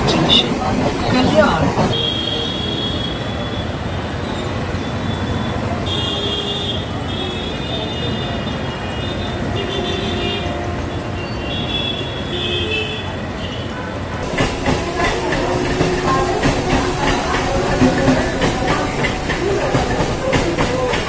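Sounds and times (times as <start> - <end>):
electric train rumbling and rattling: 0.0 - 6.1, 8.4 - 21.0.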